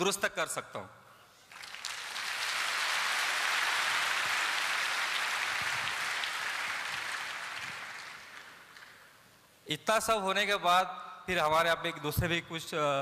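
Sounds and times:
audience applauding: 0:01.5 - 0:09.1.

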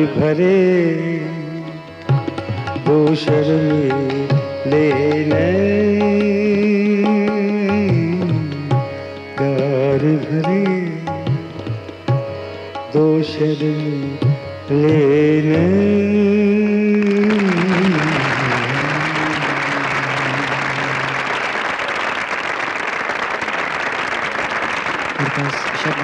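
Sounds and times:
man singing ornamented line: 0:00.0 - 0:21.2
harmonium: 0:00.0 - 0:26.0
tabla: 0:00.0 - 0:26.0
audience applause: 0:17.0 - 0:26.0.

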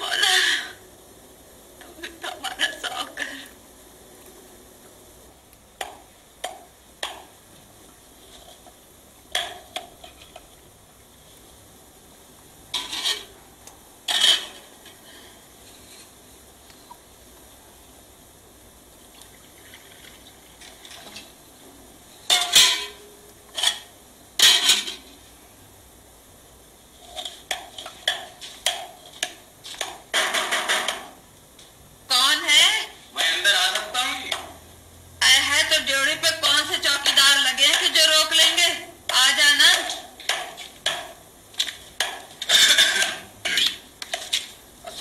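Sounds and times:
kitchen utensils clattering: 0:22.3 - 0:25.1.

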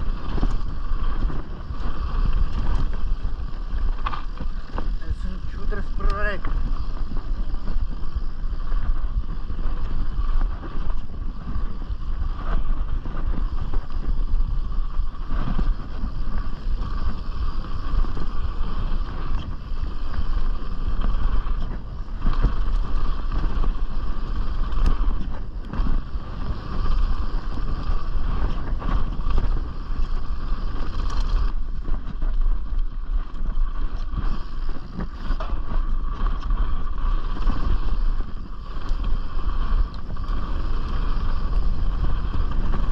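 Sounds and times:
bike tyre noise on dirt: 0:00.0 - 0:42.9
wind buffeting microphone: 0:00.0 - 0:42.9
bike knocks and rattles: 0:33.3 - 0:42.9.

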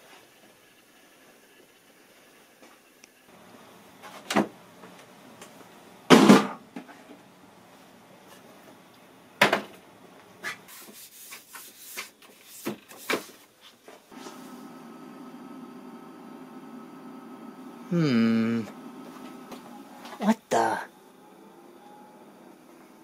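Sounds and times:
television electrical hum: 0:00.0 - 0:10.7, 0:13.4 - 0:23.0
heavy equipment thumping on workbench: 0:06.1 - 0:06.6.

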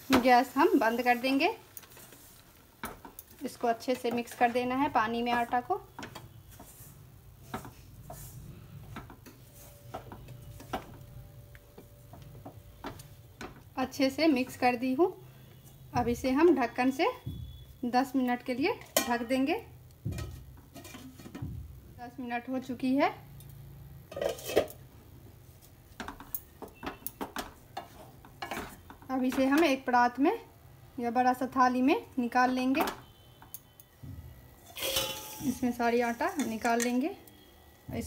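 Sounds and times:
wooden spatula scraping steel pan: 0:00.1 - 0:11.0, 0:34.6 - 0:37.0
spatula clattering: 0:34.6 - 0:37.0.

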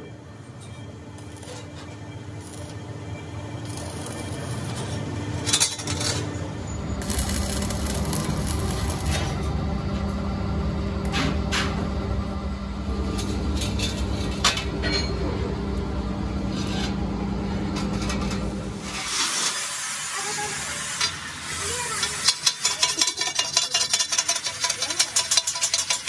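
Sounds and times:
electrical hum: 0:00.0 - 0:19.0
arc welding crackle and sizzle: 0:00.9 - 0:14.8, 0:15.7 - 0:26.0.

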